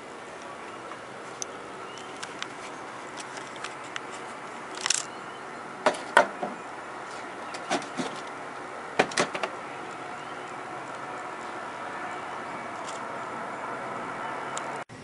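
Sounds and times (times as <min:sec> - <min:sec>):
handling clicks and knocks: 0:00.4 - 0:05.1, 0:09.0 - 0:11.0.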